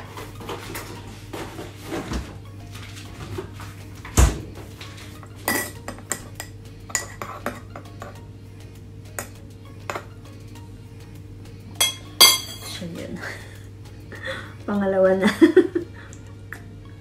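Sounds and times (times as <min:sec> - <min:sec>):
teaspoon clinking ceramic mug: 0:11.8 - 0:12.6.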